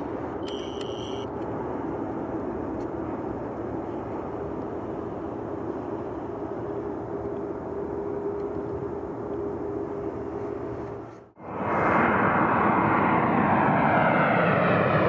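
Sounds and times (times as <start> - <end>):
faint steady hum: 0.0 - 2.1
jet engines rumbling: 0.0 - 15.0.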